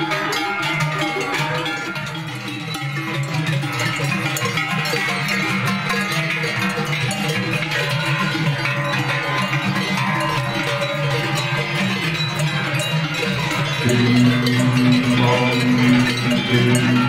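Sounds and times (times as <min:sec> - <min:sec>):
cowbells jangling: 0:00.0 - 0:17.0
deep steady bell tone: 0:08.2 - 0:17.0.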